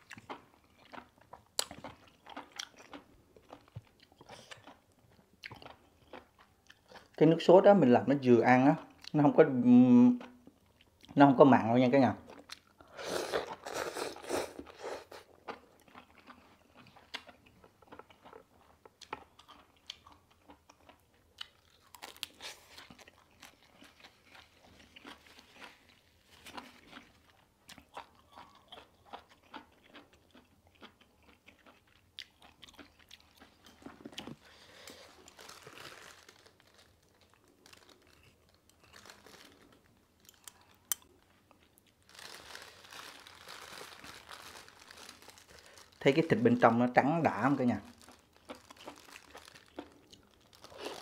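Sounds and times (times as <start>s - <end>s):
chewing with small crunches: 0.0s - 7.3s, 10.0s - 11.4s, 12.2s - 51.0s
slurping noodles: 12.9s - 15.3s.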